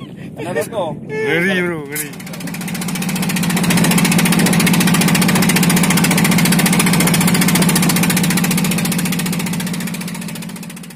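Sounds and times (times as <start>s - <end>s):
boat engine knocking: 1.6s - 10.9s.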